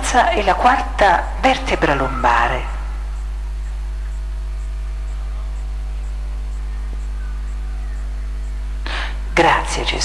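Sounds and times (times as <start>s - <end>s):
low electrical hum: 0.0s - 10.0s
even hiss: 1.3s - 10.0s.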